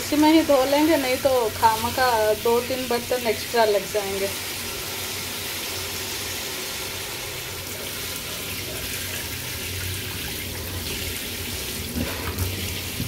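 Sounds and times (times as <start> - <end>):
tap running into a sink: 10.2 - 13.0.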